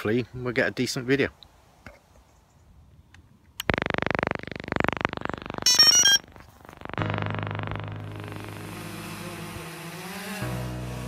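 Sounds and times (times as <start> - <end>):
drone propellers humming: 3.6 - 11.0
loud buzzing: 3.6 - 11.0
electronic start-up beeps: 3.7 - 9.4.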